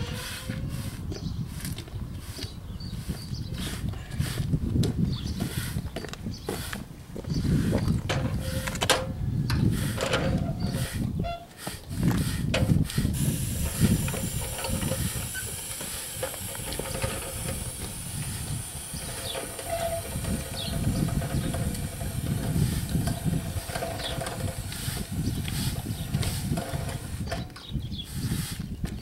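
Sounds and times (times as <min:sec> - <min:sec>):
aerosol paint spraying hiss: 0:12.2 - 0:27.3.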